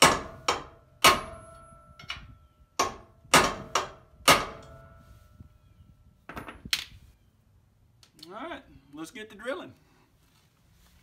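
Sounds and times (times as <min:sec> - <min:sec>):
hammer striking metal punch: 0:00.0 - 0:02.2, 0:02.8 - 0:05.0.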